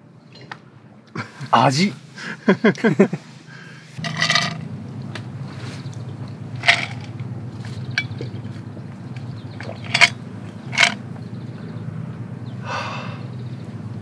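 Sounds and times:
steady low hum: 0.0 - 14.0
spoon and tumbler clinking cups: 4.0 - 4.6, 6.6 - 11.0.

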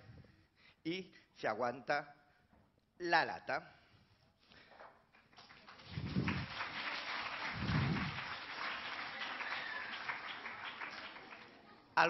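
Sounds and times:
children applauding: 5.3 - 12.0.

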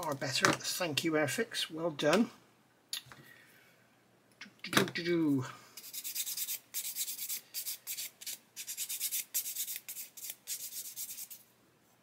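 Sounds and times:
sanding stick rubbing plastic: 5.8 - 11.4.

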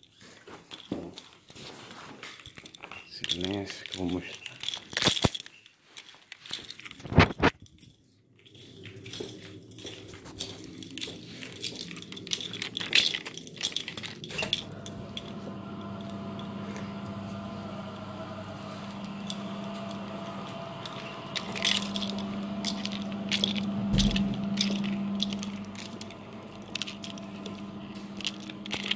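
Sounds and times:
keys clinking: 0.0 - 17.5, 18.9 - 28.9
steady machine hum: 8.8 - 28.9.

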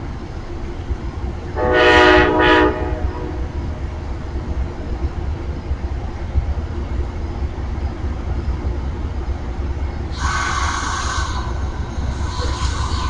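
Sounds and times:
train low rumble: 0.0 - 13.0
train hiss: 9.6 - 13.0.

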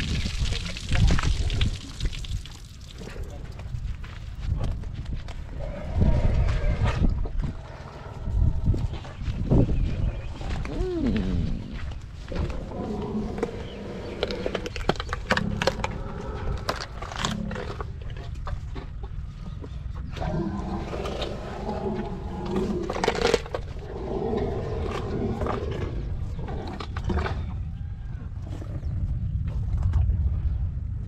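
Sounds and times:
elephant crunching watermelon: 10.4 - 27.5.

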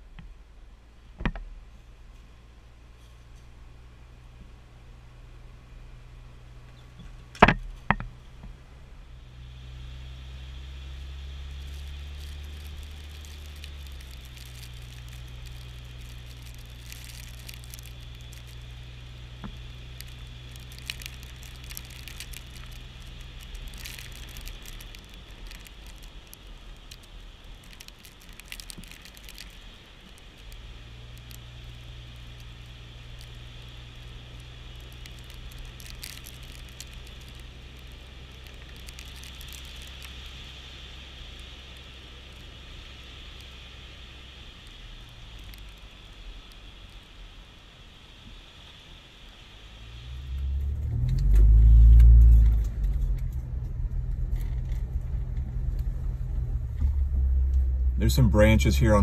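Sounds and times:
low drivetrain hum: 0.0 - 59.0
sand crunching under tyre: 10.1 - 46.9.

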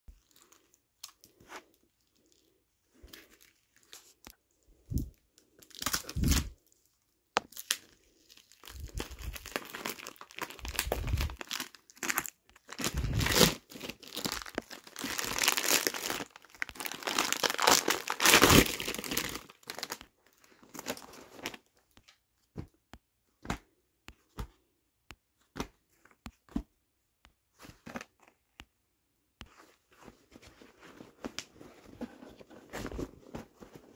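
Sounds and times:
plastic packaging crinkling and tearing: 4.9 - 6.8, 7.4 - 21.8.

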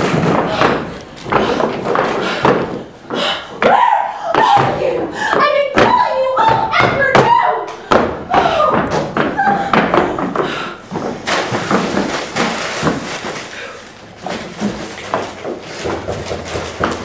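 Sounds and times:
items thumping on table: 3.6 - 13.5, 14.2 - 17.0
paper bag crinkling: 11.2 - 17.0.

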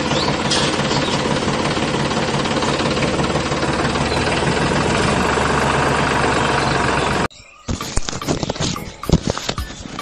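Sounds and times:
tractor engine idling: 0.0 - 7.3.

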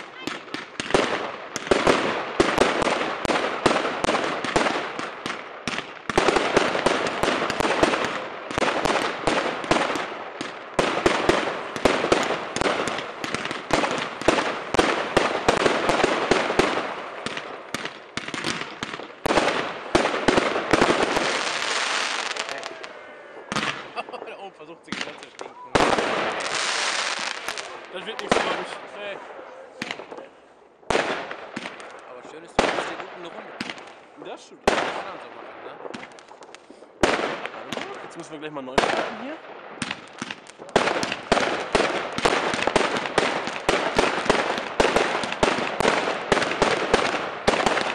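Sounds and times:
fireworks bangs and crackle: 0.0 - 47.9.

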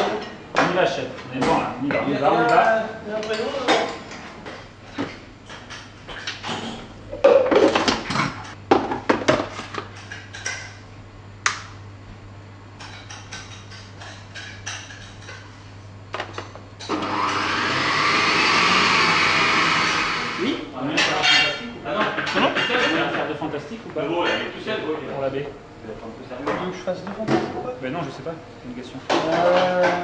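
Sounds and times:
kitchen knocks and clatter: 3.3 - 10.8, 12.8 - 15.5, 21.0 - 23.2, 29.1 - 30.0
ice-cream machine running: 16.8 - 20.5.

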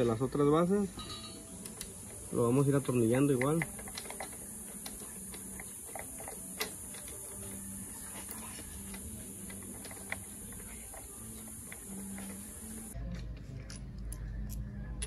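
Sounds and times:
metal bolts clicking: 1.1 - 7.8.

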